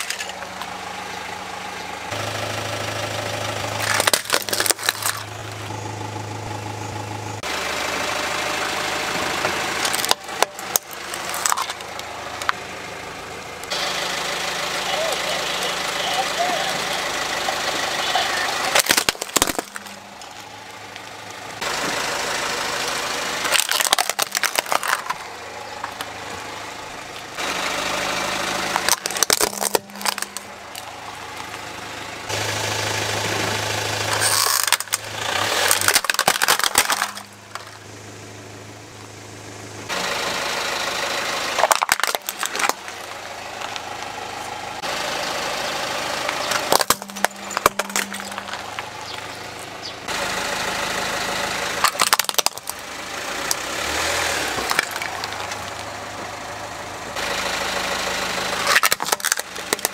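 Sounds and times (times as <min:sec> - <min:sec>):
plastic toys crushed by tyre: 0:00.0 - 0:00.8, 0:03.6 - 0:05.4, 0:09.4 - 0:12.6, 0:18.6 - 0:21.1, 0:23.4 - 0:26.4, 0:28.4 - 0:31.7, 0:33.9 - 0:37.9, 0:41.5 - 0:44.1, 0:46.2 - 0:50.0, 0:51.8 - 0:55.9, 0:58.5 - 0:59.9
car engine idling: 0:00.0 - 0:59.9.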